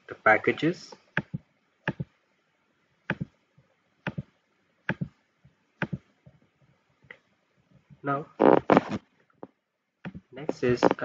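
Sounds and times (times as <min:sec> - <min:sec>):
mouse and keyboard clicks: 0:01.2 - 0:02.1, 0:03.1 - 0:03.3, 0:05.8 - 0:06.0.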